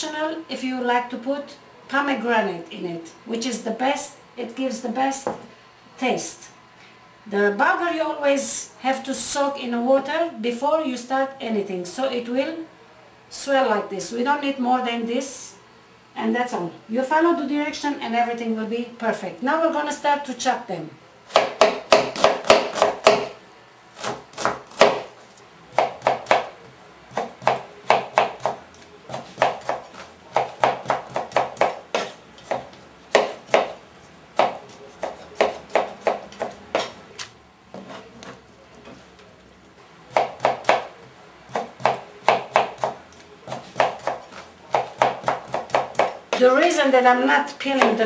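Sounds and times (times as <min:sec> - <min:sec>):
knife chopping on plastic board: 0:21.3 - 0:23.4, 0:24.0 - 0:25.1, 0:25.7 - 0:26.5, 0:27.1 - 0:33.8, 0:34.4 - 0:37.0, 0:40.1 - 0:40.9, 0:41.5 - 0:46.5.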